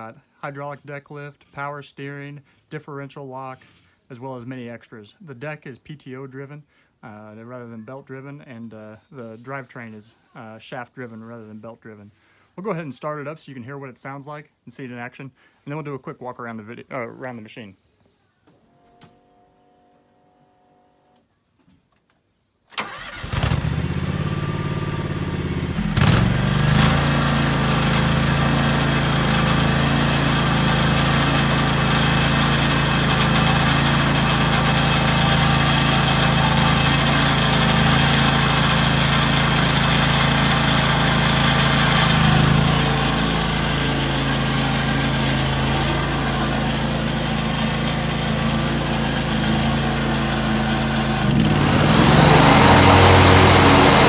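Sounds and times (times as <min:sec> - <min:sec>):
garden tractor engine running: 0:22.7 - 0:54.0.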